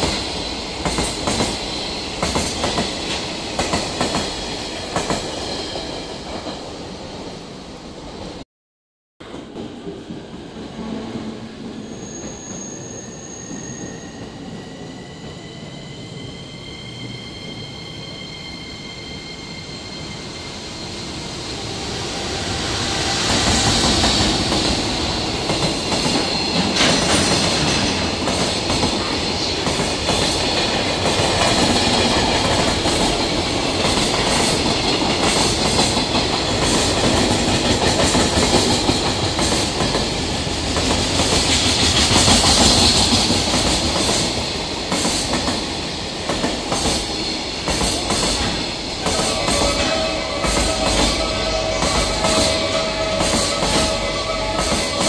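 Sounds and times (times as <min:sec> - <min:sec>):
freight train rumble: 0:14.1 - 0:55.0.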